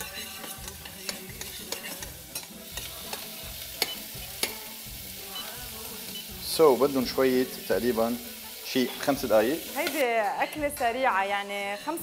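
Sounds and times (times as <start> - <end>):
utensil scraping pan: 0.0 - 4.6, 10.8 - 12.0
food sizzling in pans: 0.0 - 12.0.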